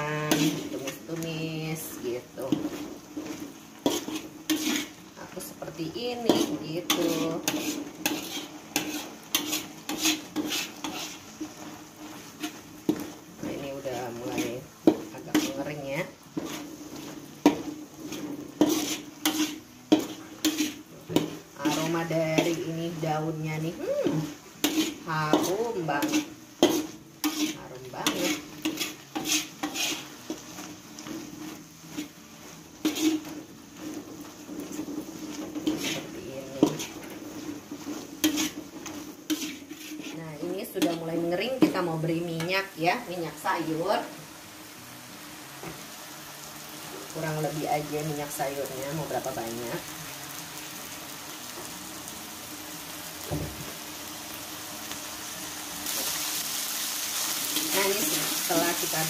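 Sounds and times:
spatula scraping paste in a wok: 0.0s - 41.8s.

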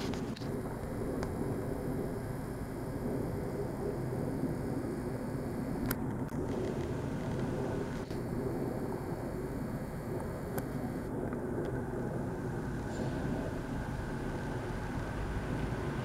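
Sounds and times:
faint clicks: 0.0s - 4.2s, 5.0s - 9.3s, 9.9s - 11.8s
low outdoor rumble: 0.0s - 16.0s.

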